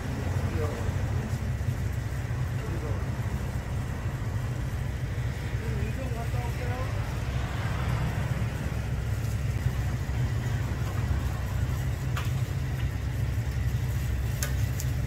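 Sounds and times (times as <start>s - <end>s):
low rumble: 0.0s - 14.3s
pancakes sizzling in oil: 8.6s - 15.0s.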